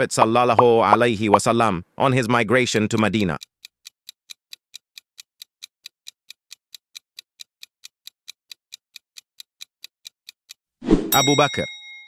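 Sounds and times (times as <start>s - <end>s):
fast clock ticking: 2.2s - 10.6s.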